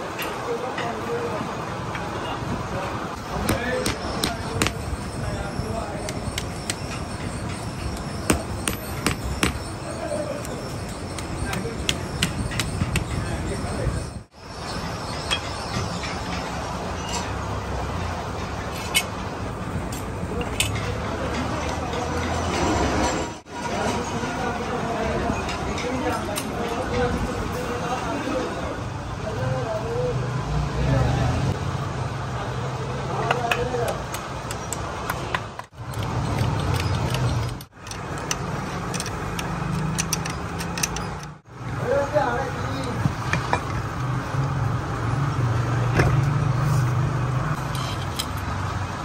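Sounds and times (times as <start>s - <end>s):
steel laminations clinking: 3.2s - 13.7s
wooden clamp knocking: 8.2s - 9.7s
metal laminations clicking: 33.5s - 41.4s.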